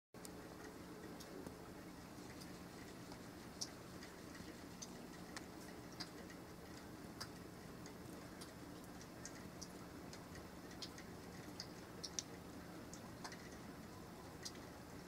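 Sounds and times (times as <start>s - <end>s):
steady low hum: 0.2s - 15.0s.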